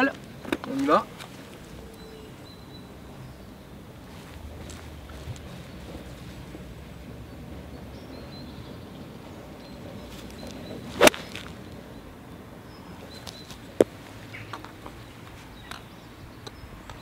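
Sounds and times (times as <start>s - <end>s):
golf club swish and strike: 10.2s - 11.7s.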